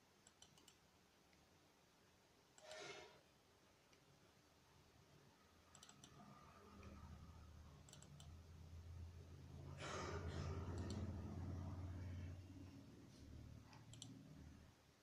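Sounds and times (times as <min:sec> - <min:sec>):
computer mouse clicks: 0:00.2 - 0:01.4, 0:02.6 - 0:02.8, 0:05.7 - 0:07.1, 0:07.8 - 0:08.4, 0:10.6 - 0:11.5, 0:13.7 - 0:14.4
low hum: 0:06.0 - 0:14.7.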